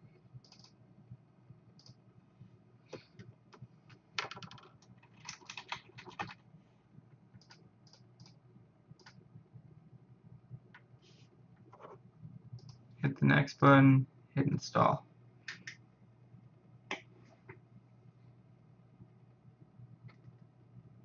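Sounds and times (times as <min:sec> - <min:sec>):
computer keyboard typing: 0:00.4 - 0:00.8, 0:04.2 - 0:06.4, 0:07.4 - 0:08.4, 0:09.0 - 0:09.2.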